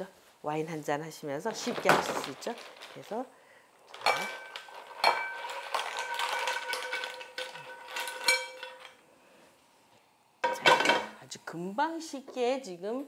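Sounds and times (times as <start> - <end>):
clam shells clattering in pan: 1.6 - 3.2, 3.9 - 9.0
dishes clattering: 3.9 - 9.0, 10.4 - 11.2.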